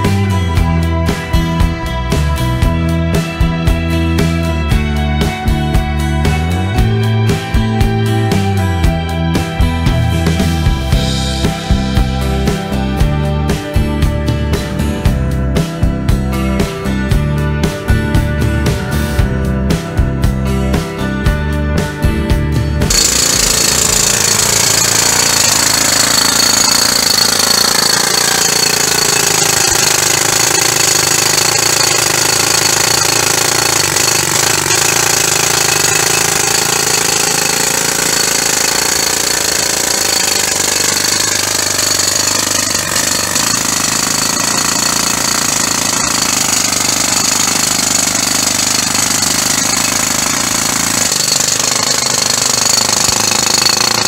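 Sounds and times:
jackhammer breaking concrete: 22.8s - 54.0s.

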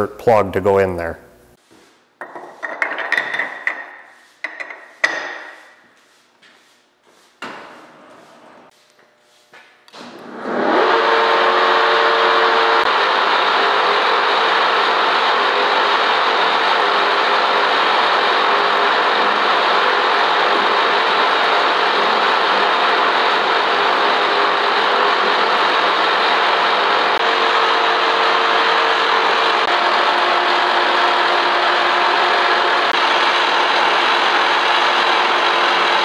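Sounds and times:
metal clanks and knocks: 2.2s - 5.6s
boring mill running: 10.1s - 36.0s.

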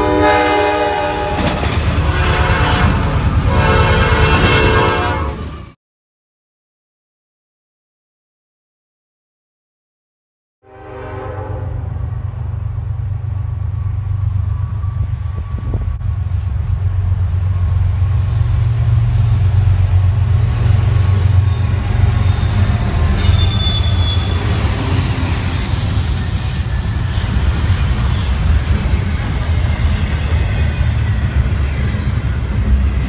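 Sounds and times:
diesel locomotive engine rumble: 0.0s - 5.8s, 10.7s - 33.0s
train wheels hissing on rail: 15.6s - 33.0s
high wheel squeal: 20.6s - 33.0s.

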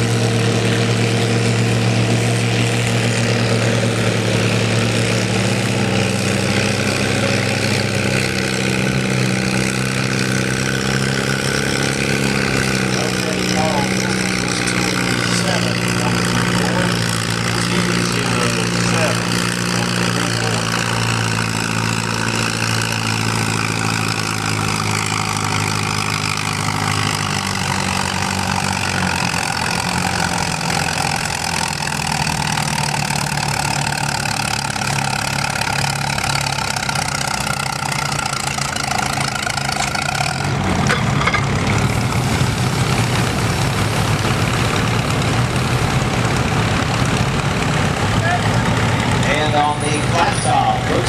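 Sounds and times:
tractor engine running: 0.0s - 51.0s.

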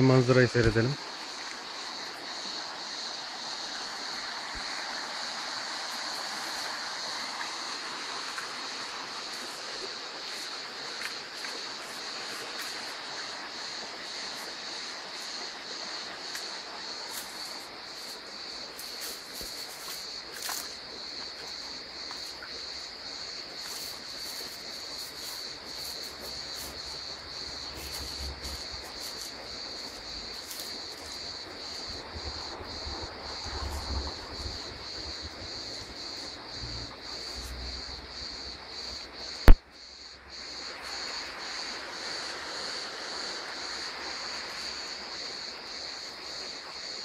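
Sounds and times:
crickets trilling: 0.0s - 47.0s
wind rumble on microphone: 31.9s - 36.8s.

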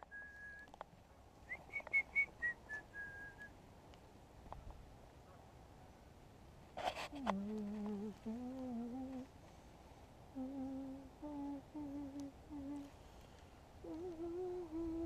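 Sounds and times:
man humming: 7.2s - 9.3s, 10.3s - 12.9s, 13.8s - 15.0s.

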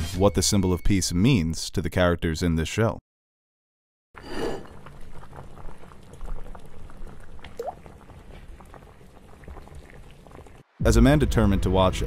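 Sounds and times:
liquid bubbling at a boil: 4.2s - 10.7s.

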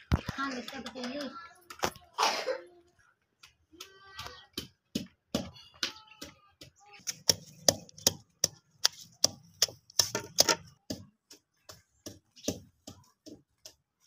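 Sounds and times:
pestle pounding in a mortar: 4.5s - 5.6s, 6.2s - 14.0s.

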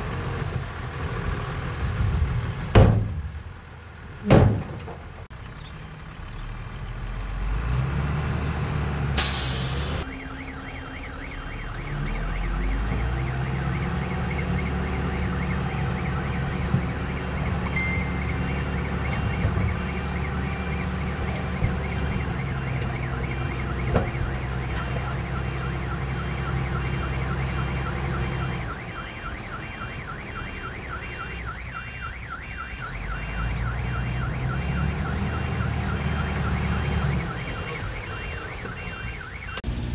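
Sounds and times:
diesel engine of heavy machinery: 0.0s - 39.9s
short hiss: 9.2s - 10.0s
backup alarm beeping: 9.7s - 39.7s.

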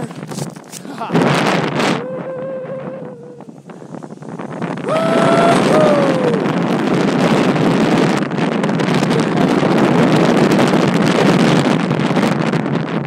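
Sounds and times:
wind buffeting microphone: 0.0s - 13.0s
person yelling: 2.0s - 3.5s, 4.9s - 6.5s.

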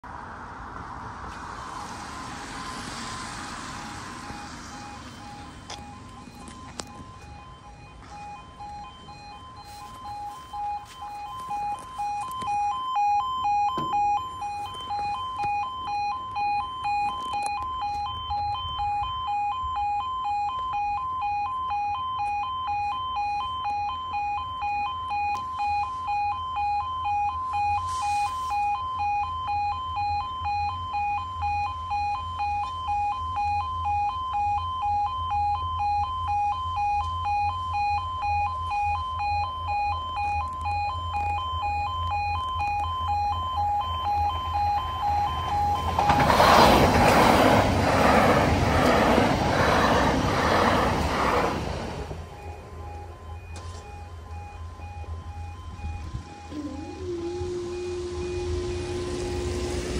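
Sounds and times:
two-tone electronic alarm pulsing: 1.7s - 59.9s
low rumble: 54.3s - 59.9s.

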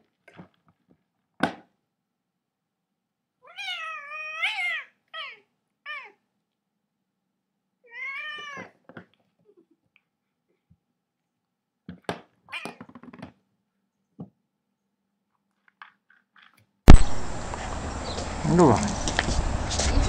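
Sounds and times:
cat meowing: 3.4s - 6.2s, 7.8s - 8.8s, 12.5s - 12.9s
sharp knock: 16.9s - 17.6s.

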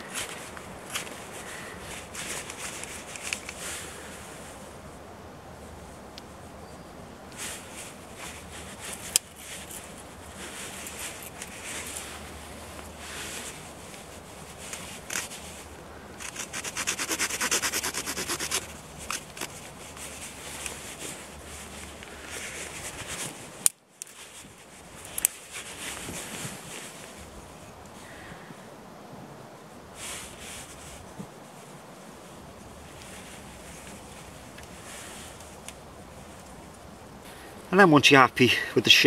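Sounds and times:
knife scraping bark off stick: 16.2s - 20.9s.

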